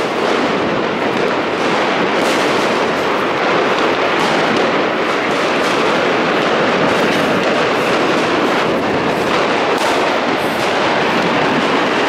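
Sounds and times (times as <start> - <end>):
firecrackers crackling: 0.0 - 12.0
sharp firework bangs: 0.0 - 12.0.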